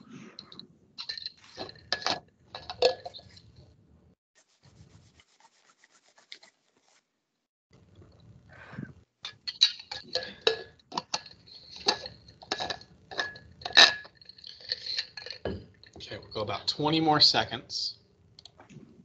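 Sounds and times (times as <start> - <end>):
rubbing and scraping: 0.0 - 3.8, 4.4 - 7.2, 8.8 - 16.5.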